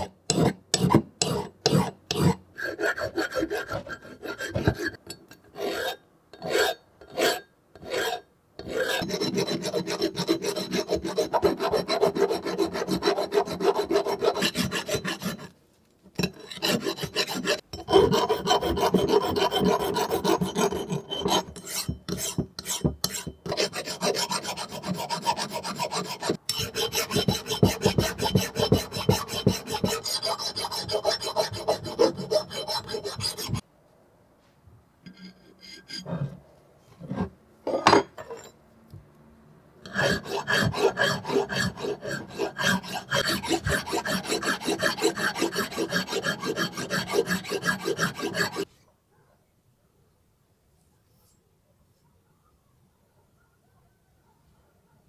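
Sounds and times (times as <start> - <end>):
hand file rasping on metal: 0.0 - 15.5, 16.2 - 33.6, 35.1 - 36.4, 39.8 - 48.7.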